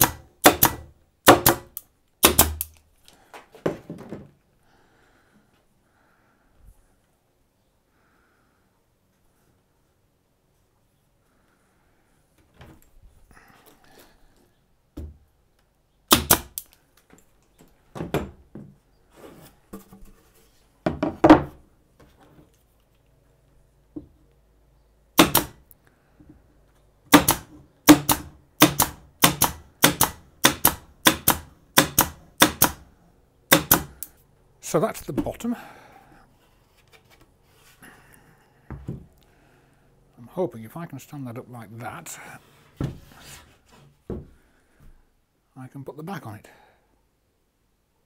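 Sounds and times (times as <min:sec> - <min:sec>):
pin nailer shots: 0:00.0 - 0:02.8, 0:16.1 - 0:16.7, 0:25.2 - 0:25.6, 0:27.1 - 0:32.9, 0:33.5 - 0:34.2.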